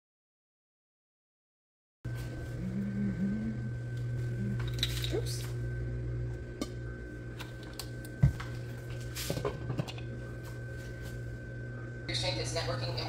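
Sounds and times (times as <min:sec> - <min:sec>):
low hum: 0:02.1 - 0:13.0.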